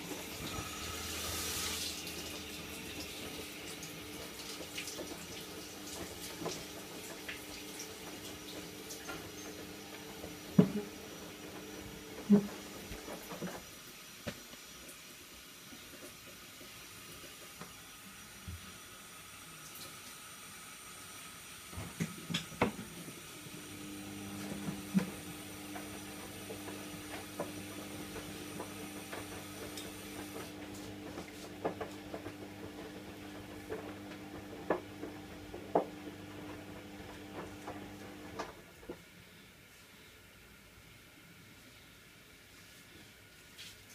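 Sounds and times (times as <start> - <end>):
tap water running into sink: 0.0 - 13.6, 21.8 - 36.0.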